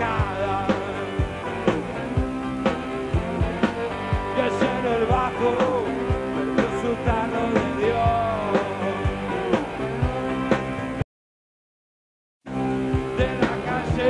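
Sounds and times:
person singing: 0:00.0 - 0:01.8, 0:04.3 - 0:10.7, 0:13.0 - 0:14.0
distorted electric guitars: 0:00.0 - 0:11.0, 0:12.5 - 0:14.0
steady drum beat: 0:00.0 - 0:11.0.

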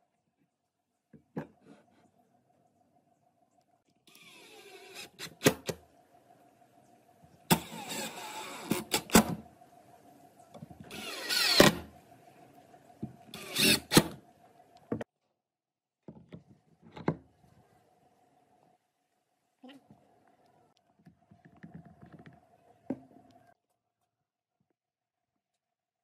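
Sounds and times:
power drill driving screws: 0:07.5 - 0:09.2, 0:10.9 - 0:11.8, 0:13.3 - 0:14.1.

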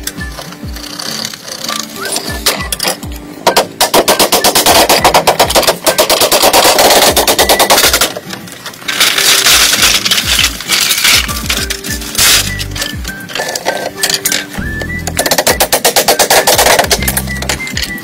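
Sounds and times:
mallets knocking on bamboo: 0:15.1 - 0:17.6.

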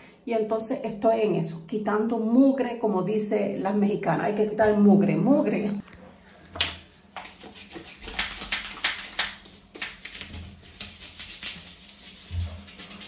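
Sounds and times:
brush scraping: 0:07.1 - 0:13.0
toothbrush scrubbing grout: 0:07.1 - 0:13.0.

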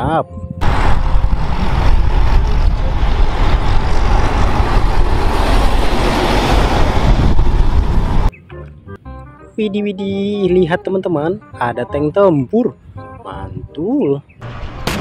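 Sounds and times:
truck driving past: 0:00.6 - 0:08.3.

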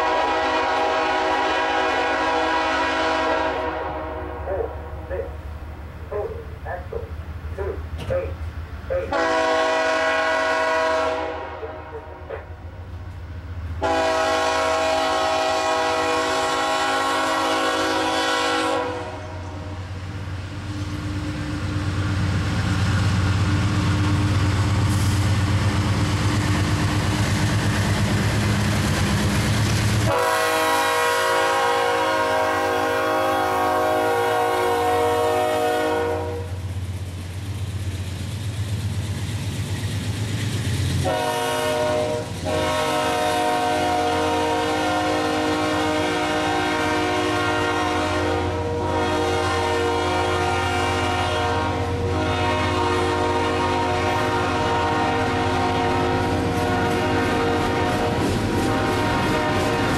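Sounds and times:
train air horn blasts: 0:00.0 - 0:05.3, 0:08.9 - 0:12.6, 0:13.8 - 0:19.8, 0:30.1 - 0:36.6, 0:41.0 - 0:59.9
diesel locomotive rumbling: 0:00.0 - 0:59.9
train wheels clattering on rail: 0:07.9 - 0:08.6, 0:20.7 - 0:30.3, 0:36.4 - 0:43.2, 0:55.5 - 0:59.9.

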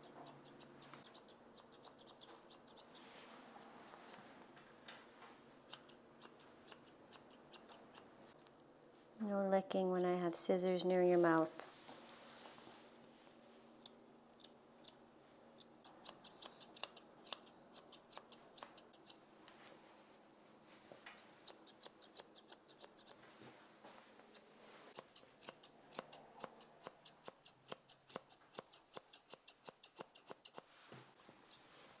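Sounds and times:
scissors snipping hair: 0:00.0 - 0:03.0, 0:05.7 - 0:08.1, 0:15.6 - 0:19.2, 0:21.4 - 0:23.2, 0:25.0 - 0:30.7.

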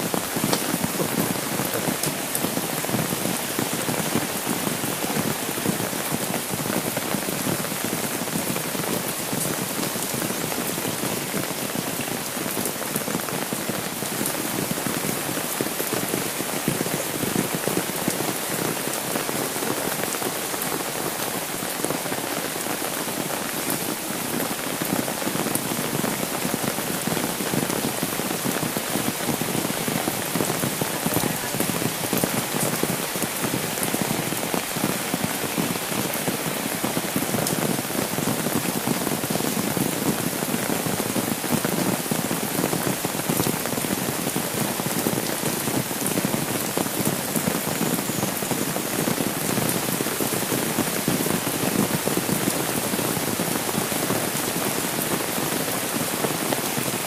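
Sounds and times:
raindrops spattering: 0:00.0 - 0:43.9
rain on an umbrella: 0:00.0 - 0:57.0.

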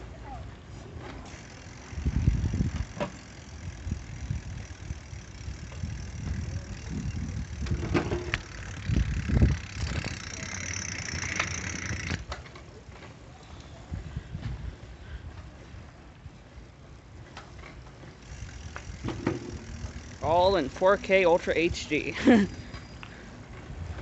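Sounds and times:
bicycle on brick paving: 0:00.0 - 0:24.0
bike clicking and rattling: 0:00.9 - 0:24.0
wind buffeting microphone: 0:01.8 - 0:10.4, 0:13.8 - 0:16.4, 0:23.4 - 0:24.0.

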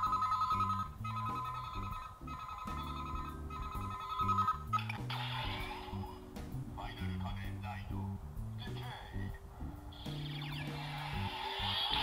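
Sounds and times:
electronic phone ringing tone: 0:00.0 - 0:06.1
low bass music notes: 0:00.0 - 0:12.0.

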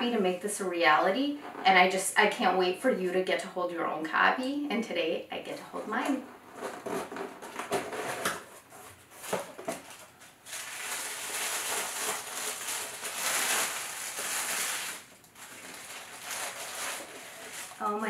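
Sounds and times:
tissue paper rustling: 0:08.8 - 0:18.0.

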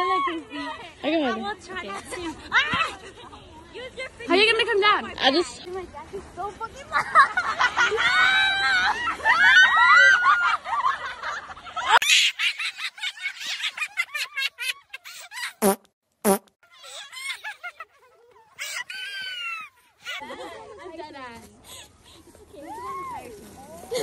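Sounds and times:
young voices shrieking and laughing: 0:06.9 - 0:15.6, 0:16.7 - 0:20.8, 0:21.7 - 0:24.0
crunching and rustling in snow: 0:22.2 - 0:24.0.

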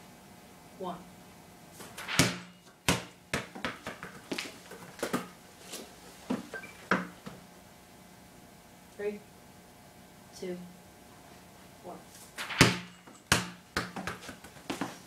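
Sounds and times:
basketball bouncing on concrete: 0:02.1 - 0:05.4, 0:06.3 - 0:07.4, 0:12.5 - 0:15.0.

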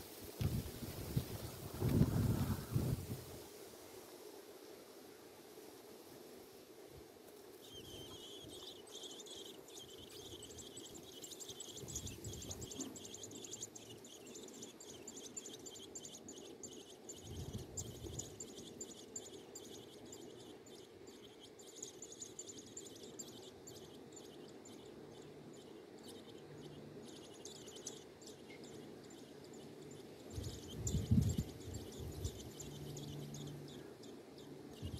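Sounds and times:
nestlings begging chirps: 0:07.4 - 0:34.9.

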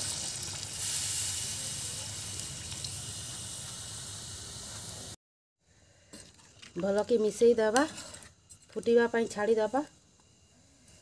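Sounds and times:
water pouring into a metal pot: 0:00.0 - 0:03.8.

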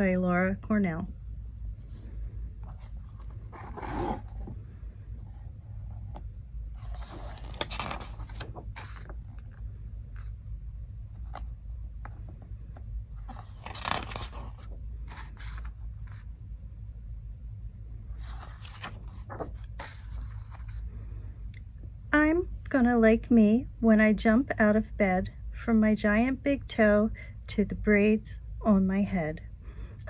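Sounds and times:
low steady hum: 0:00.0 - 0:30.0
book pages rustling: 0:01.8 - 0:04.6, 0:05.2 - 0:10.4, 0:11.1 - 0:16.3, 0:18.2 - 0:20.9.

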